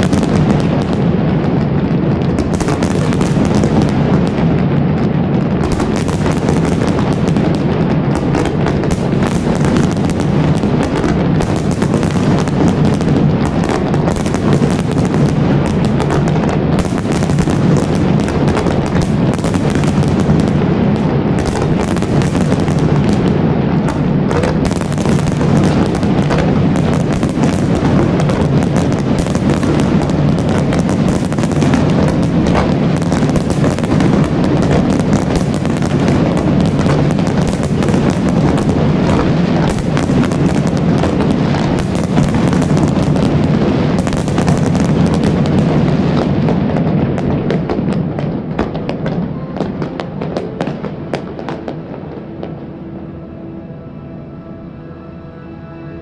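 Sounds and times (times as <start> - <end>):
fireworks crackling and banging: 0.0 - 52.8.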